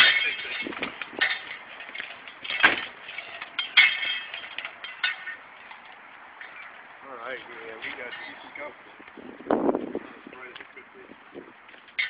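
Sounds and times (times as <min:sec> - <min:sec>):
metal armor plates clinking: 0:00.0 - 0:06.7.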